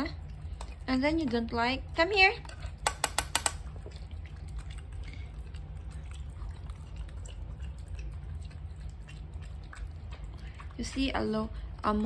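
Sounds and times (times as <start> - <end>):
dogs chewing and crunching kibble: 0.0 - 12.0
low background hum: 0.0 - 12.0.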